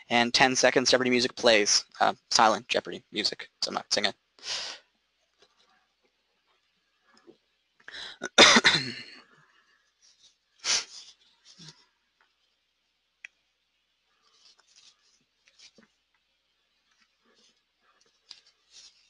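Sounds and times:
short breath: 0:04.4 - 0:04.9, 0:07.9 - 0:08.3
man coughing: 0:08.2 - 0:09.2.

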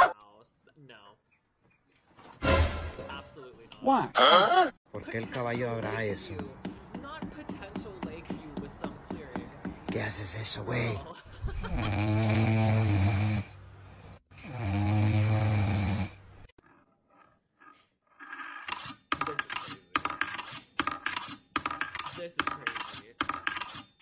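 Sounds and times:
dog snoring: 0:11.8 - 0:16.2.

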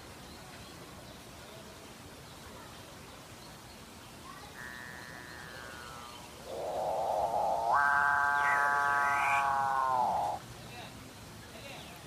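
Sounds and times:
bird calling: 0:04.6 - 0:10.4.

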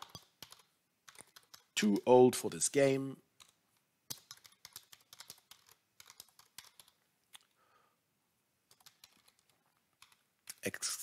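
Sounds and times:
faint computer keyboard typing: 0:00.0 - 0:02.0, 0:03.4 - 0:07.6, 0:08.6 - 0:10.7.

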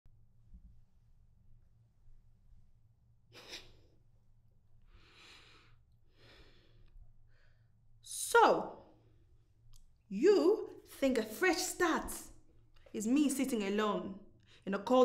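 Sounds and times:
person sniffing: 0:03.4 - 0:03.8.

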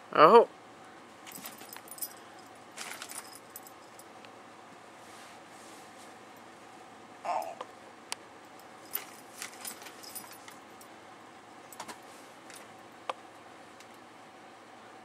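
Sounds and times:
metal collar tags jingling: 0:01.3 - 0:04.1, 0:08.5 - 0:10.9.

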